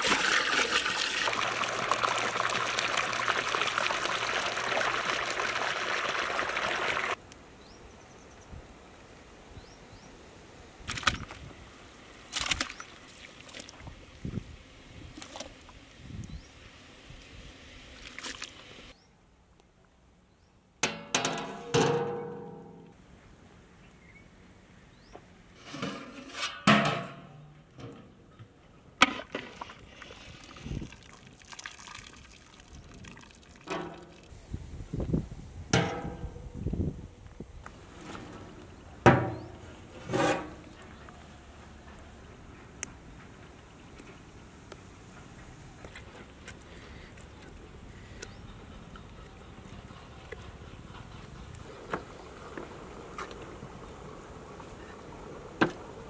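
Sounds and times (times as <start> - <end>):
water splashing and dripping: 0.0 - 7.2, 12.3 - 13.9, 18.0 - 18.7, 29.1 - 34.3
metal lid and ladle clanks: 20.8 - 22.8, 25.6 - 28.1, 33.7 - 34.2, 35.8 - 36.4
water sloshing in a pot: 29.1 - 34.3.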